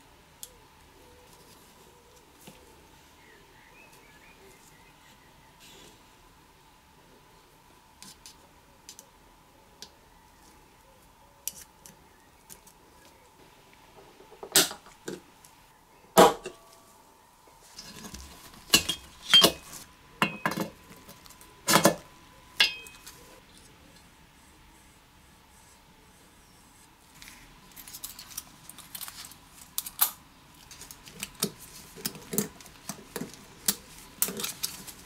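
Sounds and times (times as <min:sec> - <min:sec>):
faint steady hum: 0:00.0 - 0:35.0
metal tools clinking: 0:18.6 - 0:20.7, 0:22.6 - 0:23.2.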